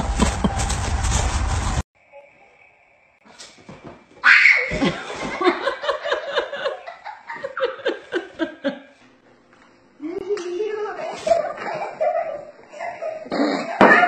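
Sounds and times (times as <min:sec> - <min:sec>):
person laughing hard: 0:00.0 - 0:00.8.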